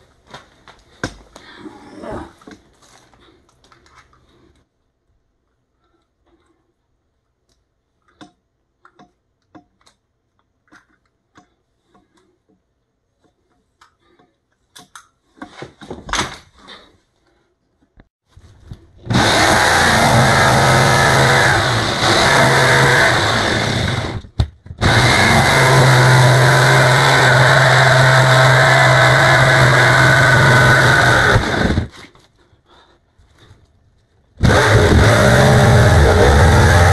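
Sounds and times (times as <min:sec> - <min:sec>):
electric power tool cutting: 0:19.1 - 0:31.9, 0:34.4 - 0:36.9.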